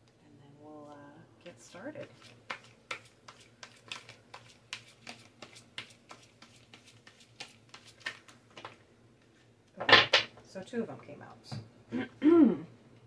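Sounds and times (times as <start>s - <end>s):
playing cards being shuffled: 2.2s - 8.8s.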